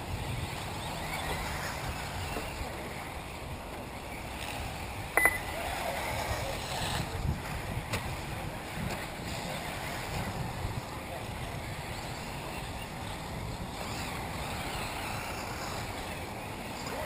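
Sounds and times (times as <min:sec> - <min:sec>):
electric motors whining: 0:00.0 - 0:17.0
brief high beep: 0:05.2 - 0:05.5.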